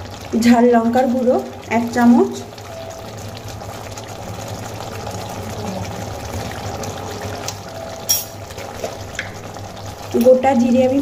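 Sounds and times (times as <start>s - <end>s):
food sizzling in hot oil: 0.0s - 11.0s.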